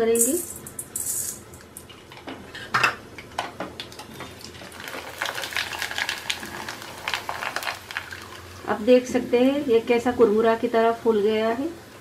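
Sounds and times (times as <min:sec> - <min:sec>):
rice crackling in hot oil: 0:03.8 - 0:09.7.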